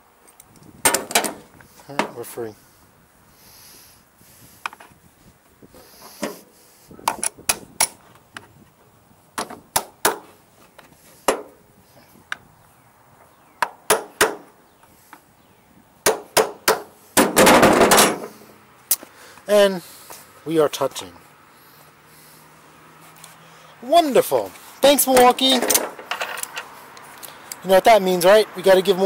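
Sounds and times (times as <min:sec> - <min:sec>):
metal tools clanking on metal: 0:25.1 - 0:26.7.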